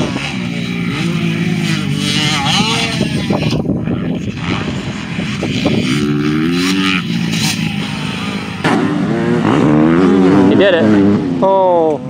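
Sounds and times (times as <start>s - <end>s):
dirt bike engine revving: 0.0s - 11.7s.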